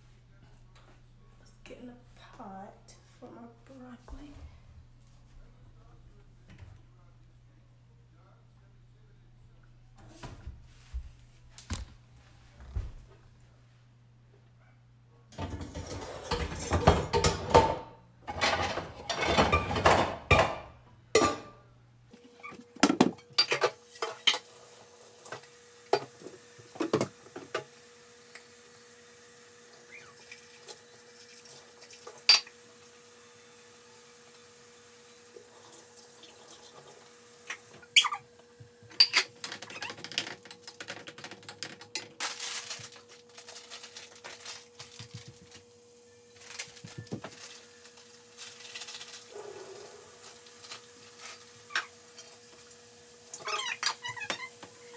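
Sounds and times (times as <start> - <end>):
metal pots and utensils clanking: 15.4 - 21.6, 22.5 - 24.6, 38.9 - 42.5
water running into sink: 23.6 - 38.0, 47.0 - 54.9.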